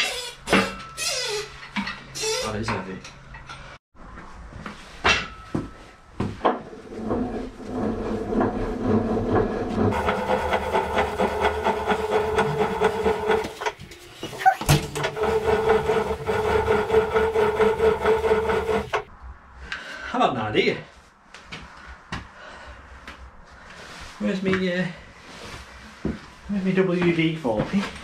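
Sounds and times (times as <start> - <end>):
hand crank gearing grinding: 7.7 - 13.8, 15.0 - 19.1.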